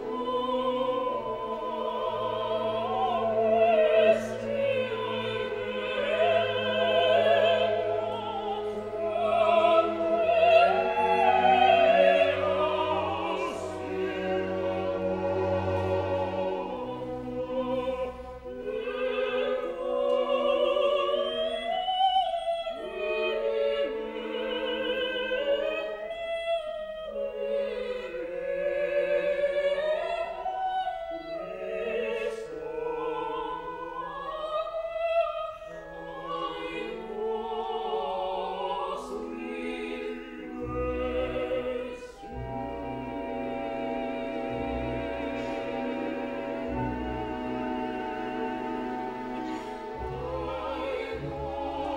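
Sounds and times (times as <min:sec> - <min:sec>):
sustained chord accompaniment: 0:00.0 - 0:21.3, 0:36.0 - 0:51.9.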